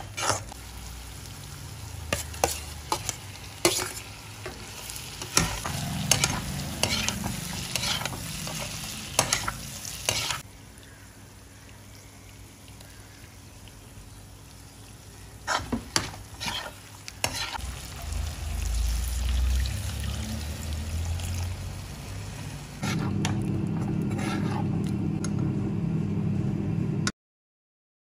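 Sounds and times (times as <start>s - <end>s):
metal spatula scraping a pan: 0.0s - 0.6s, 2.1s - 4.1s, 5.2s - 10.4s, 15.4s - 17.8s, 22.8s - 23.2s, 24.0s - 24.7s
light sizzle: 0.0s - 23.4s.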